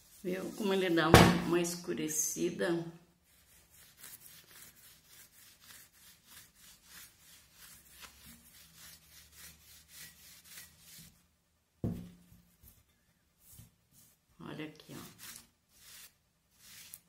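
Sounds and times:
cloth rubbing on glass jug: 0.0s - 1.1s, 3.2s - 11.2s, 13.4s - 17.0s.

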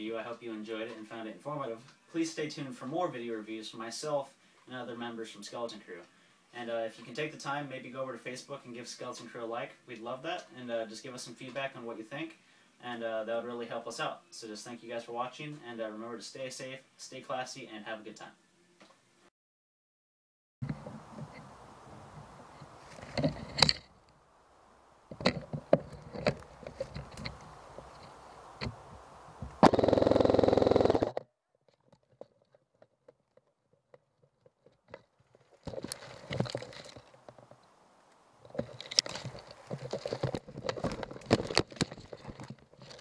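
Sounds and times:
rifle handling scrapes and knocks: 22.6s - 23.9s, 25.1s - 28.2s, 34.7s - 37.6s, 38.4s - 43.0s.

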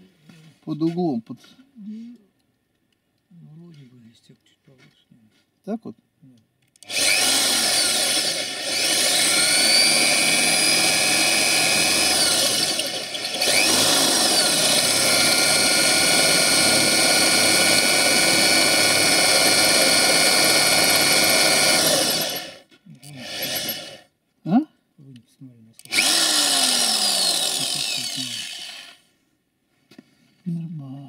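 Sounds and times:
electric drill boring into steel: 6.8s - 24.1s, 25.8s - 29.1s.

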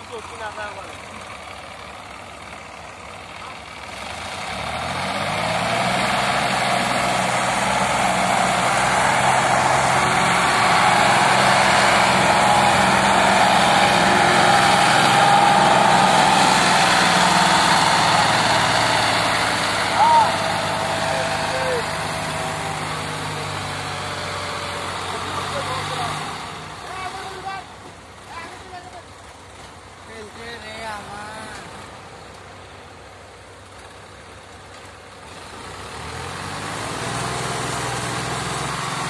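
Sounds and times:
tractor diesel engine: 0.0s - 39.0s.

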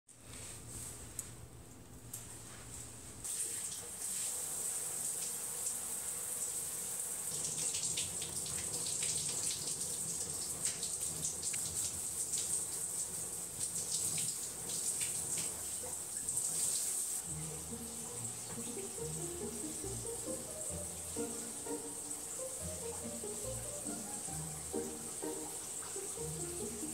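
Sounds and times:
tap water running: 3.2s - 26.9s
background music: 17.2s - 26.9s.

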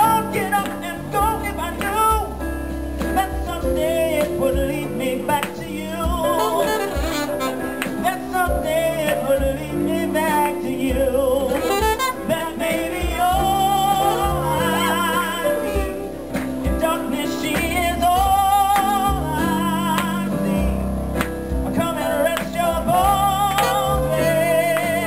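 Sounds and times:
man singing into a microphone: 0.0s - 25.0s
piano chords: 0.0s - 25.0s
saxophone melody: 6.2s - 8.9s, 11.4s - 16.4s, 23.1s - 25.0s.

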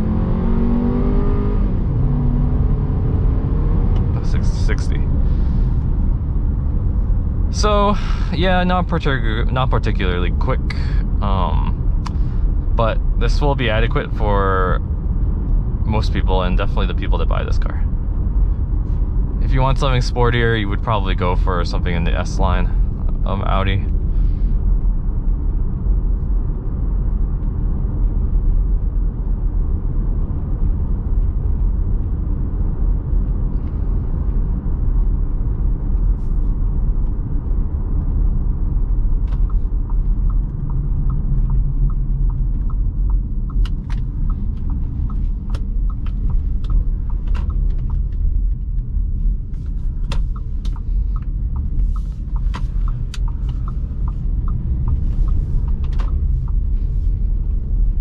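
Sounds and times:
car engine and road rumble: 0.0s - 58.0s
turn signal ticking: 14.8s - 58.0s.

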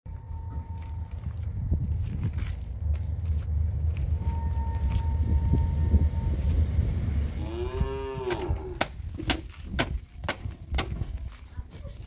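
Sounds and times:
low rumble: 0.1s - 11.4s
cow mooing: 7.3s - 8.8s.

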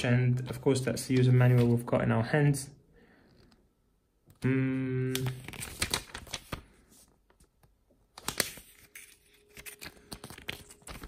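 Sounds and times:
paper pages rustling: 1.1s - 1.9s, 5.2s - 11.0s
man humming: 4.3s - 5.4s.

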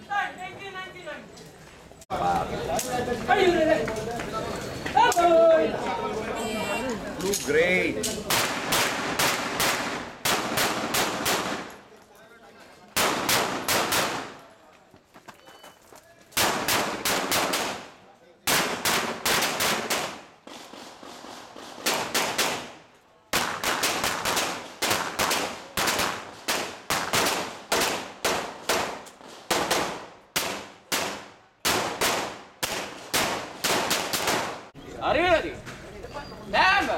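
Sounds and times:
pistol shots: 8.3s - 11.8s, 13.0s - 14.4s, 16.4s - 17.9s, 18.5s - 34.7s.

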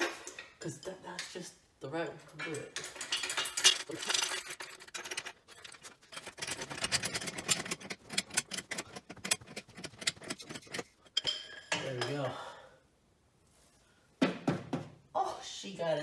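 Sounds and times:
metal tools clinking: 2.2s - 12.4s.

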